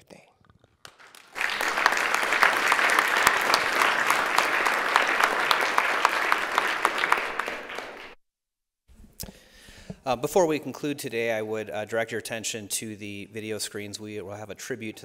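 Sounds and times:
crowd applauding: 0.8 - 8.2.

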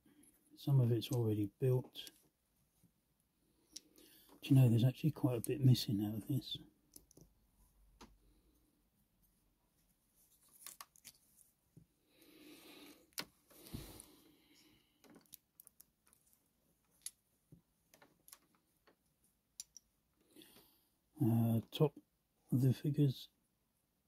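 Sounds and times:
soft rustle: 9.2 - 12.1
plastic bricks clicking on table: 19.6 - 19.9.

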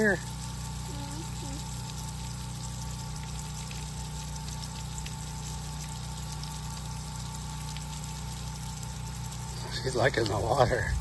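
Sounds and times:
water jet splattering on mud: 0.0 - 11.0
low hum: 8.7 - 11.0.

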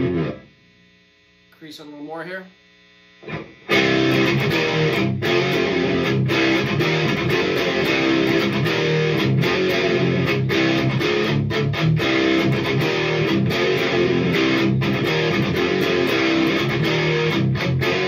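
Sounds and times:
distorted electric guitar riff: 0.0 - 18.0.

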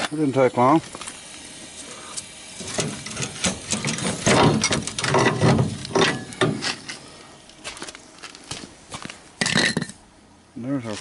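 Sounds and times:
metal clanking and rattling: 2.6 - 7.0, 9.4 - 10.0.

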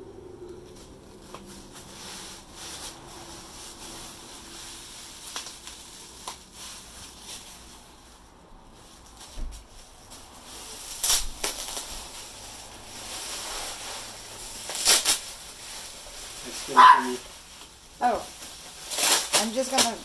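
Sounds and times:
faint low hum: 0.0 - 14.6
packing sheet rustling: 0.7 - 20.0.

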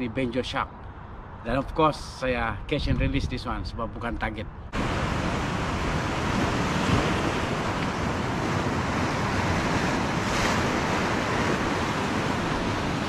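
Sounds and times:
surf washing over rocks: 4.8 - 13.0
wave crashing against rocks: 4.8 - 13.0.

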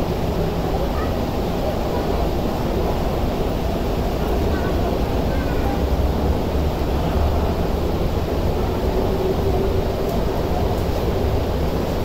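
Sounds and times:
train low rumble: 0.0 - 12.0.

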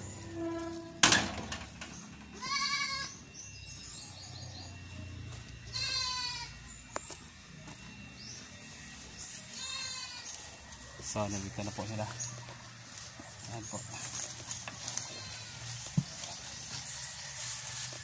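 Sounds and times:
goats bleating: 2.3 - 3.2, 5.7 - 6.6, 9.5 - 10.4, 14.8 - 15.9.

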